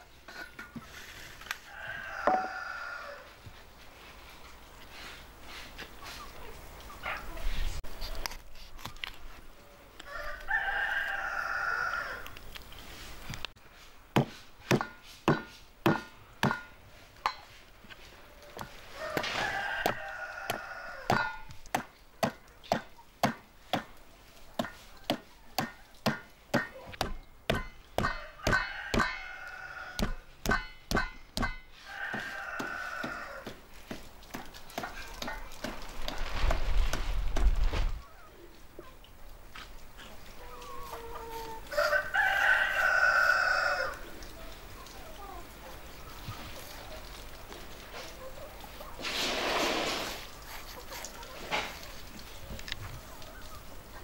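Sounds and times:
rooster crowing: 0:01.7 - 0:03.3, 0:10.1 - 0:12.2, 0:18.9 - 0:21.2, 0:28.0 - 0:30.2, 0:31.8 - 0:33.5, 0:40.5 - 0:44.0
knife chopping on wooden board: 0:24.6 - 0:29.1.

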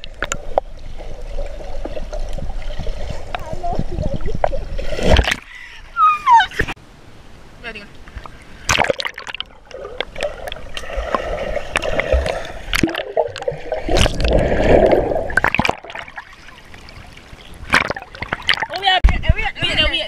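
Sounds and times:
clicks and splashes: 0:08.2 - 0:19.0
muffled underwater rushing and bubbling: 0:08.6 - 0:18.8.

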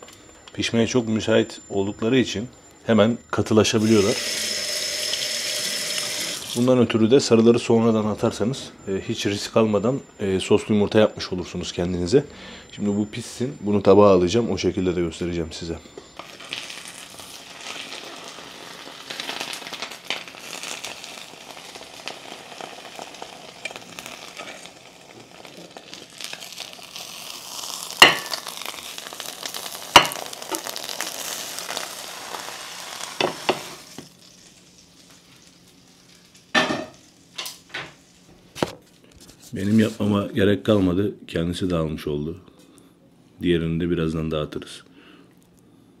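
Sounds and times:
eggs sizzling in a pan: 0:03.8 - 0:06.6, 0:16.2 - 0:38.2.

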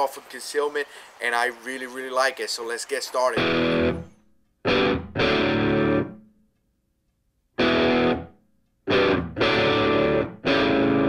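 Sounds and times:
distorted electric guitar chords: 0:03.4 - 0:06.2, 0:07.6 - 0:11.0.

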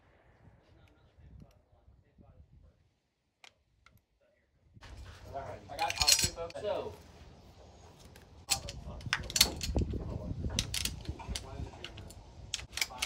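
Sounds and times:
brass cartridges clinking: 0:05.7 - 0:06.6.

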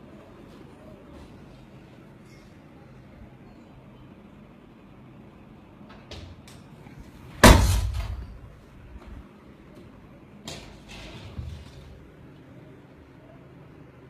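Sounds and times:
loud echoing bang: 0:07.4 - 0:08.4.

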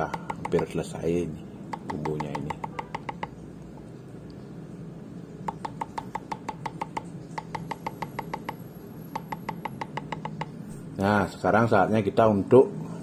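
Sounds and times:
cleaver chopping on wooden board: 0:00.1 - 0:00.7, 0:01.8 - 0:03.3.

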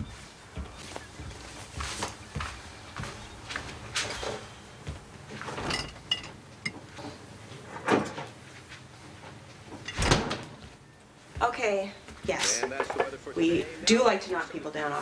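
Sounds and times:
dishes and cupboards knocking: 0:12.2 - 0:13.2.

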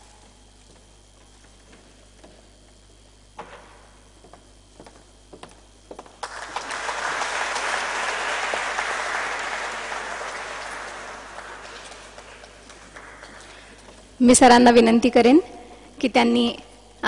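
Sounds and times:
audience applauding: 0:06.2 - 0:14.1.

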